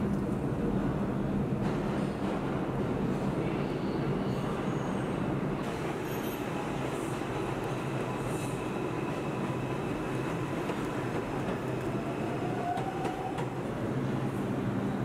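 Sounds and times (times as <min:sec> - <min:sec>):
subway train rumbling: 0:00.0 - 0:15.0.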